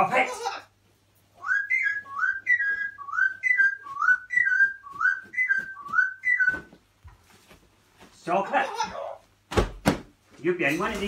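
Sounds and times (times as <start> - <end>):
parrot whistling: 1.4 - 6.7.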